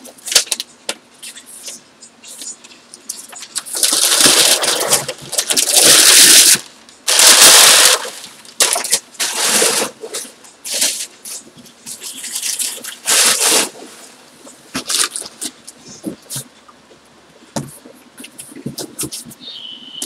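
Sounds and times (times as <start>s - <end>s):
packing paper crackling and rustling: 3.1s - 16.5s.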